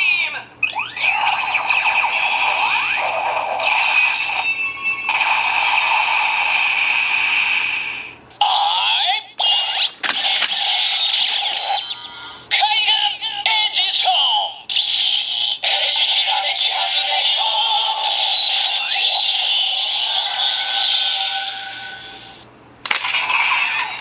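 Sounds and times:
sharp click: 9.9s - 10.6s, 22.9s - 23.2s.

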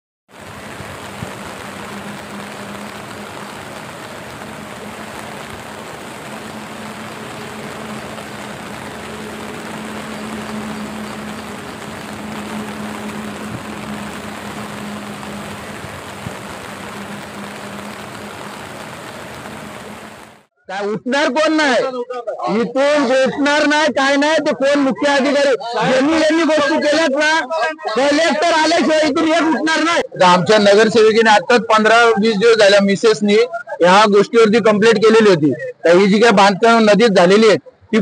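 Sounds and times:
rushing water: 0.3s - 20.5s.

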